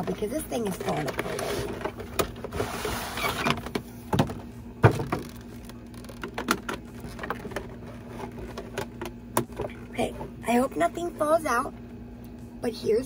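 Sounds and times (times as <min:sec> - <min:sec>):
plastic tray sliding and scraping: 0:00.8 - 0:03.6
plastic clicks and knocks: 0:03.5 - 0:07.7.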